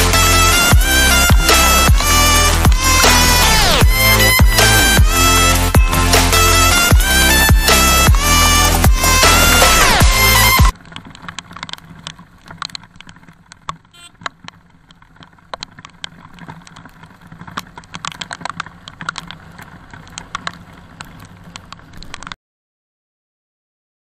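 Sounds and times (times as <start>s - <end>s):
motorcycle low hum: 0.0s - 22.4s
raindrops striking a camera: 10.2s - 22.4s.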